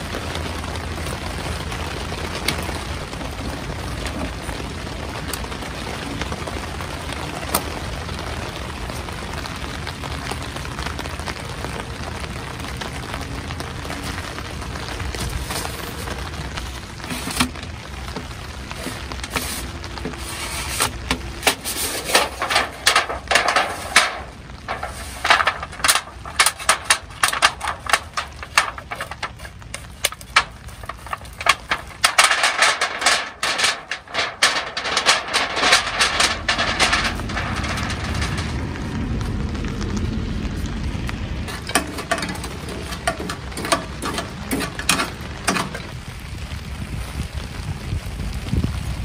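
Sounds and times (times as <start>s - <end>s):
steady low rumble: 0.0s - 49.0s
metal pipe clicking and rattling: 18.7s - 38.8s, 41.5s - 46.0s.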